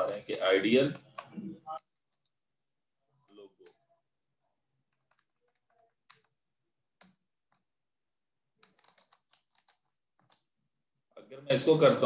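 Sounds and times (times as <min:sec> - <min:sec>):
faint keyboard keystrokes: 0:04.8 - 0:07.7, 0:08.6 - 0:10.5.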